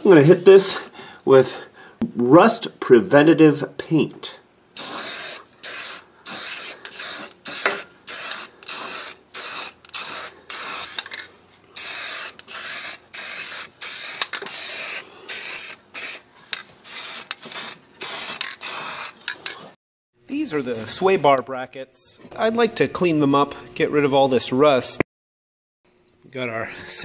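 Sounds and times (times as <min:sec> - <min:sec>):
spray can hissing: 0:04.8 - 0:11.1, 0:11.8 - 0:16.2, 0:16.8 - 0:19.3.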